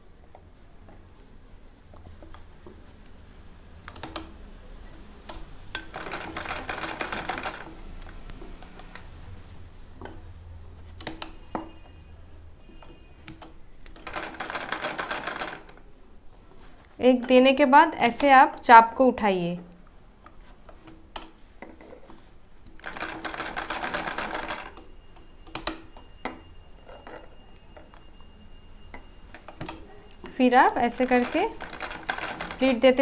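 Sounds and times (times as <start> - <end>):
sewing machine clicks: 5.3 - 9.0, 13.9 - 15.8, 22.8 - 24.8, 30.9 - 33.0
sewing machine needle clatter: 5.8 - 7.8, 13.9 - 15.8, 22.8 - 24.9, 30.8 - 33.0
fabric being handled: 6.0 - 25.0.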